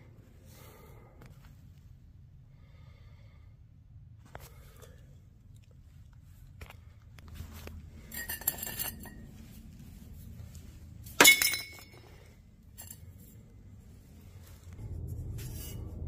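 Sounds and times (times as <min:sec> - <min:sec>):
steel pipes clinking on concrete: 0:08.0 - 0:09.4, 0:11.0 - 0:13.4
loud metal clank with ring: 0:11.2 - 0:12.0.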